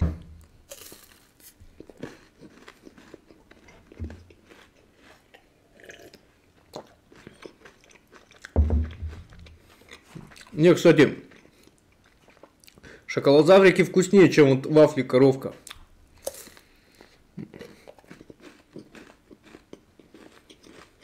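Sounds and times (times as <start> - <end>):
chewing crunchy chocolate bar: 0.7 - 12.8, 15.7 - 21.0.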